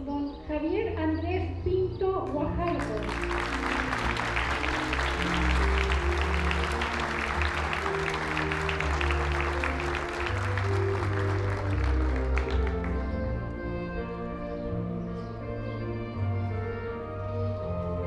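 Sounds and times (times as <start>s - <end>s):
instrumental background music: 0.0s - 18.0s
audience applauding: 2.8s - 13.2s.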